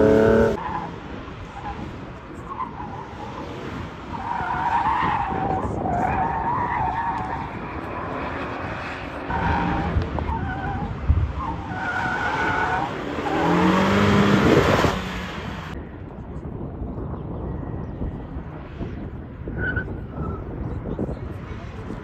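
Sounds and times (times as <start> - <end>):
car engine revving: 0.0 - 0.6, 7.2 - 15.8
car tyres squealing: 0.0 - 15.8, 19.4 - 20.7.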